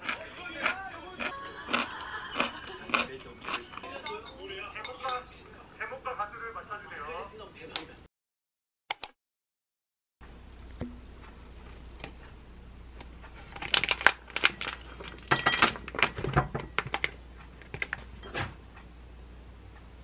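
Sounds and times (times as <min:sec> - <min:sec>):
plastic pouch crinkling: 0:13.5 - 0:18.0.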